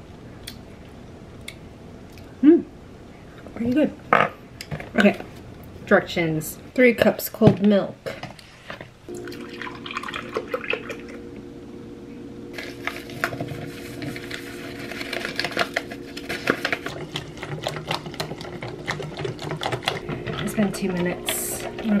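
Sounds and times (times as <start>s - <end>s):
low hum: 9.0s - 22.0s
milk pouring into metal bowl: 9.1s - 11.2s
paper rustling: 12.6s - 18.5s
whisk scraping metal bowl: 12.6s - 22.0s.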